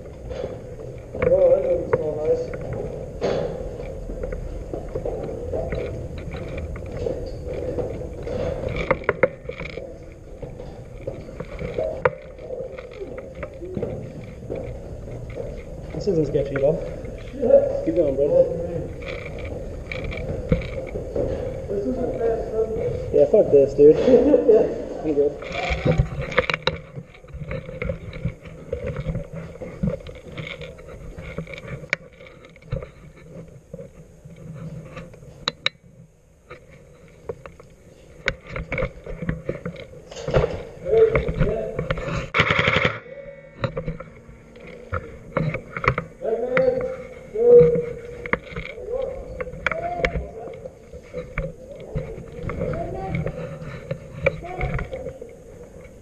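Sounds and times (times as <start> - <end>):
sharp clicks and knocks: 0.0 - 22.4, 25.4 - 43.0, 43.6 - 56.0
gear rustling: 0.0 - 43.0, 43.7 - 56.0
footsteps: 0.0 - 56.0
footsteps on metal stairs: 18.0 - 24.4.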